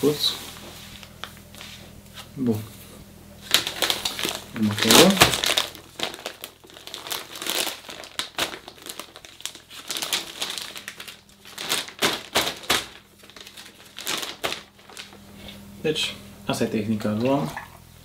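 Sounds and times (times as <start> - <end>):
plastic bag crinkling: 3.4 - 15.3.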